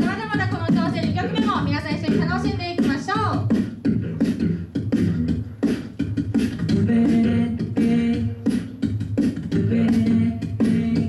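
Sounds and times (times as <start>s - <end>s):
beatboxing: 0.0s - 11.0s
voices singing held chords: 0.7s - 11.0s
sung bass line: 3.8s - 8.4s.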